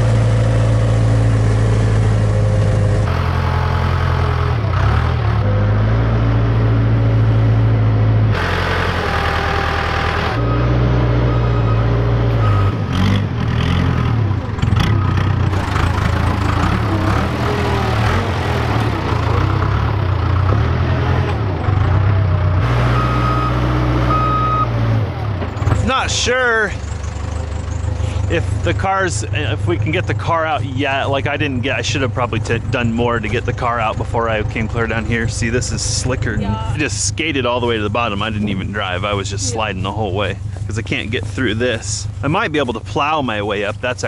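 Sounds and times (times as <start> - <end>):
diesel engine running: 0.0 - 44.0
reversing alarm beeping: 9.2 - 12.8, 22.8 - 24.8.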